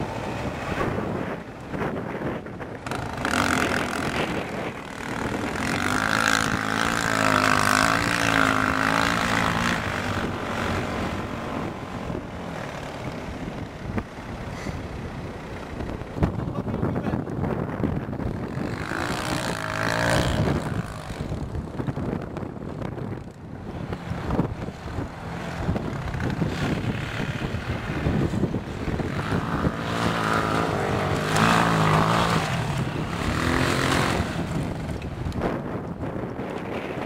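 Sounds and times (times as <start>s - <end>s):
quad bike engine revving: 0.0s - 36.8s.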